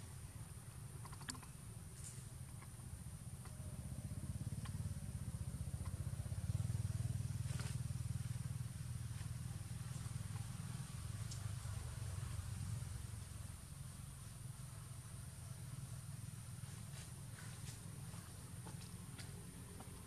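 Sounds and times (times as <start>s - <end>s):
low engine rumble: 0.0s - 20.0s
faint clicks: 1.0s - 1.6s, 4.6s - 4.8s, 11.2s - 11.5s.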